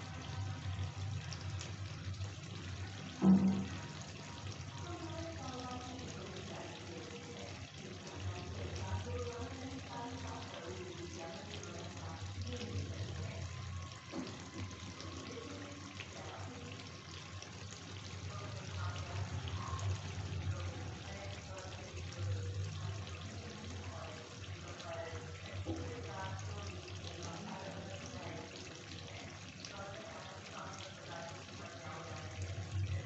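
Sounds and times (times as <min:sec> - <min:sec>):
gravy bubbling and sizzling: 0:00.0 - 0:33.0.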